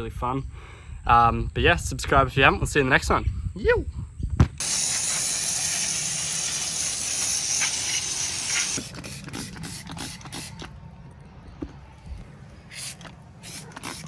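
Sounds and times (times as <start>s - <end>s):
bike tyres rolling hiss: 4.6s - 8.9s, 12.3s - 14.0s.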